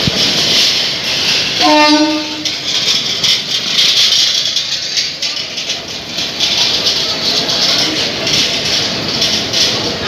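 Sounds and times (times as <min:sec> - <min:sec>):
freight train wheels clattering: 0:00.0 - 0:10.0
train horn: 0:01.6 - 0:02.5.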